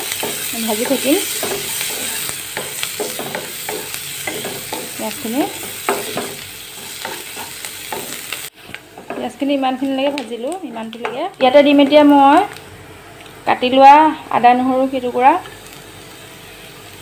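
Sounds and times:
wooden spatula scraping a pan: 0:00.0 - 0:09.4
onions sizzling in butter: 0:00.0 - 0:17.0.

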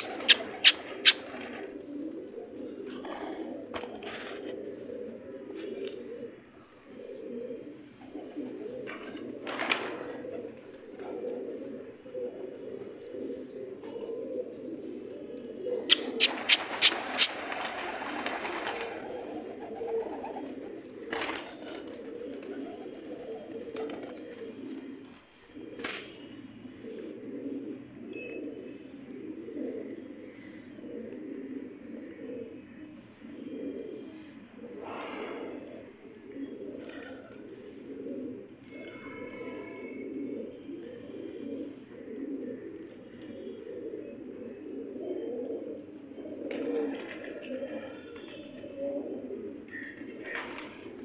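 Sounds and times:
pigeons cooing: 0:00.0 - 0:51.0.

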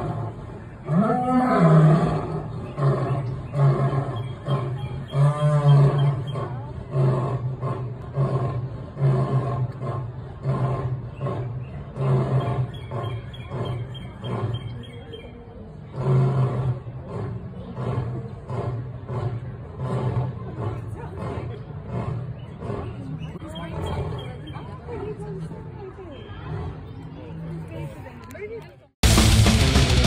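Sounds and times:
lion roaring: 0:00.0 - 0:14.6, 0:15.9 - 0:23.0.

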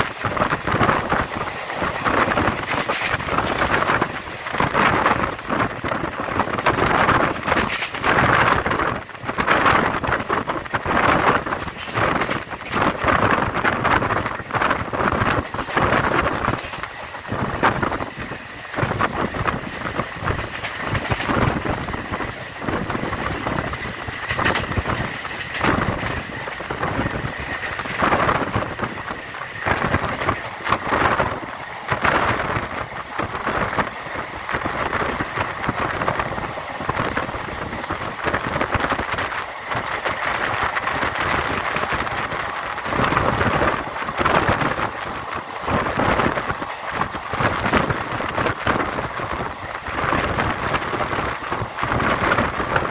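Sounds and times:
train wheels rumbling on track: 0:00.0 - 0:52.9
wind rushing past train window: 0:00.0 - 0:52.9
running gear knocks and clatter: 0:11.6 - 0:13.1.

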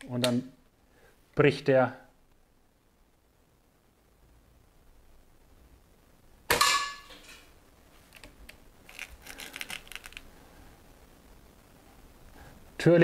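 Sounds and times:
rifle handling clicks and rattles: 0:08.1 - 0:10.3.

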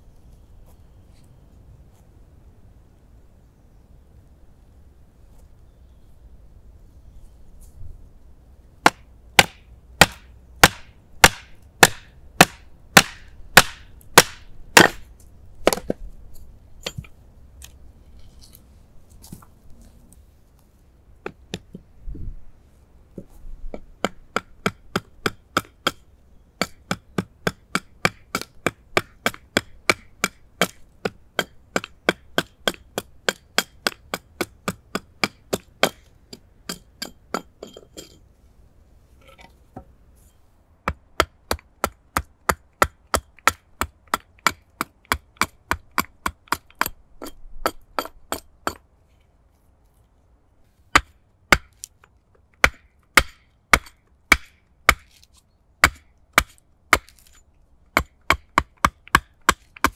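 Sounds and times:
hatchet chopping wood: 0:08.8 - 0:16.0, 0:23.7 - 0:26.0, 0:26.6 - 0:37.6, 0:40.8 - 0:48.8, 0:50.9 - 0:51.9, 0:52.6 - 0:59.9.

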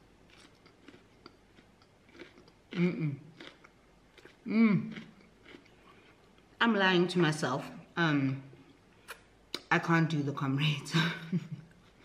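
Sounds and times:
person chewing salad: 0:00.2 - 0:06.6
woman humming mm: 0:02.8 - 0:03.2, 0:04.5 - 0:04.9.

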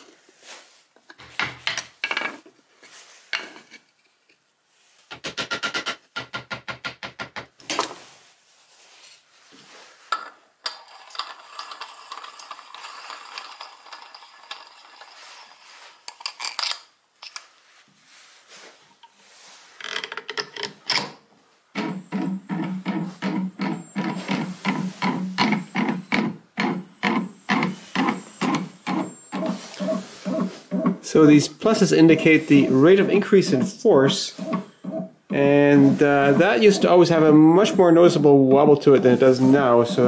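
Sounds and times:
metallic rubbing and scraping: 0:22.8 - 0:40.0.

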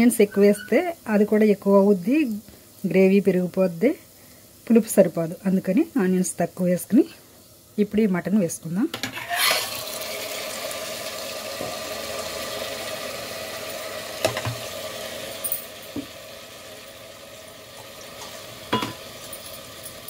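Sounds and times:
meat sizzling in hot oil: 0:00.0 - 0:20.0
wooden spatula knocking pot: 0:18.7 - 0:19.1.

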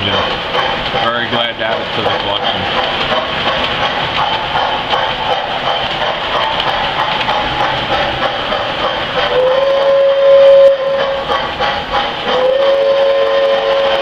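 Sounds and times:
metal wheels clattering on rails: 0:00.0 - 0:14.0
toy train running rumble: 0:00.0 - 0:14.0
train whistle: 0:09.3 - 0:11.4, 0:12.2 - 0:14.0.

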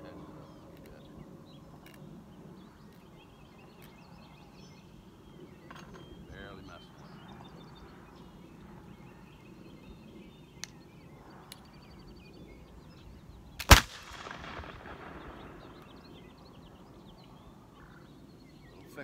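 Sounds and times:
flintlock pistol shot with echo: 0:13.6 - 0:16.2.

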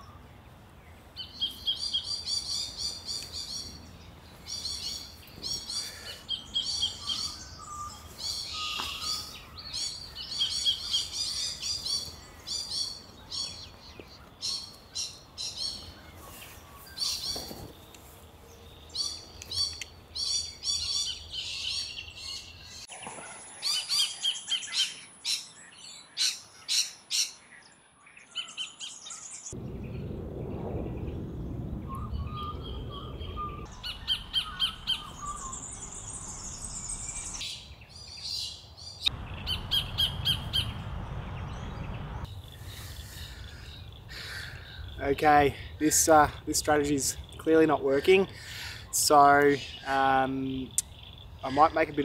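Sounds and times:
low rumble: 0:29.6 - 0:37.4, 0:39.2 - 0:42.4
kingfishers calling: 0:33.6 - 0:37.5, 0:39.0 - 0:41.7.

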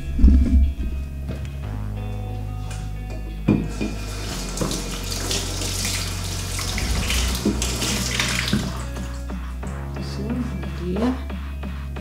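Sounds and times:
tap running into sink: 0:03.5 - 0:09.0.

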